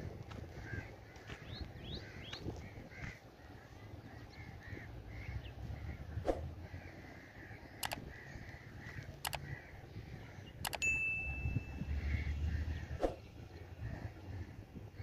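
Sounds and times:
mouse clicks: 0:07.8 - 0:08.0, 0:10.6 - 0:10.8
high bell ding: 0:10.8 - 0:12.0.

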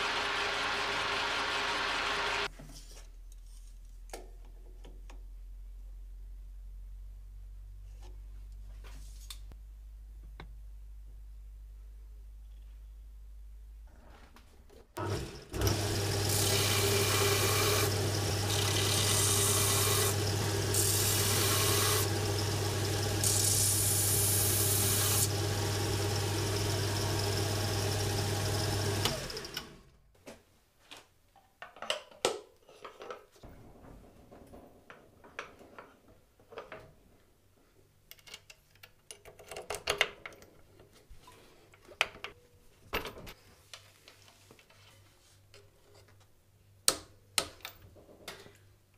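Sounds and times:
belt sander running: 0:00.0 - 0:02.5, 0:15.0 - 0:29.9
metal parts clicking and knocking: 0:38.1 - 0:40.9.

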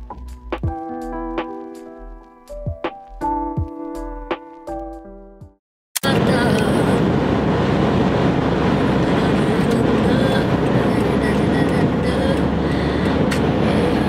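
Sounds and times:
tyre and wind noise in car: 0:07.0 - 0:14.0.

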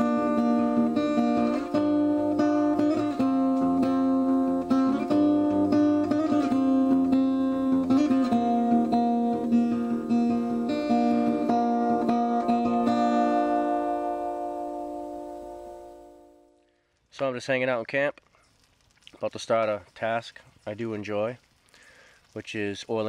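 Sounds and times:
acoustic guitar music: 0:00.0 - 0:16.9.

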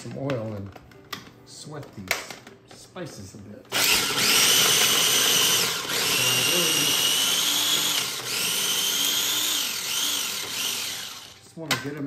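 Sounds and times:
blender motor whine grinding: 0:03.7 - 0:11.4.

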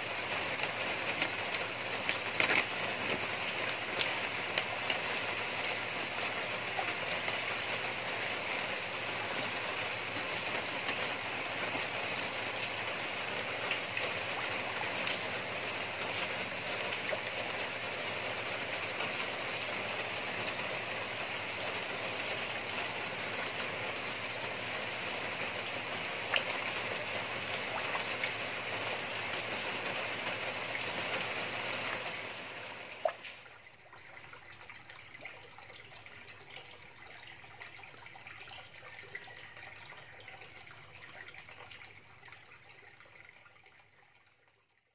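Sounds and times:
churning water in a pond: 0:00.0 - 0:44.9
fish splashing at surface: 0:00.3 - 0:12.6.

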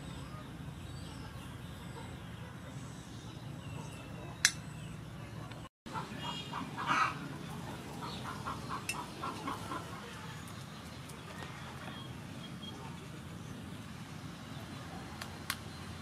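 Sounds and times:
chicken clucking: 0:05.9 - 0:10.4.

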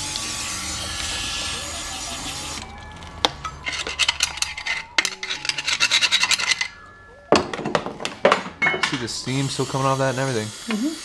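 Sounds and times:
metal tool scraping: 0:03.5 - 0:06.9
spray can hissing: 0:09.3 - 0:11.0.

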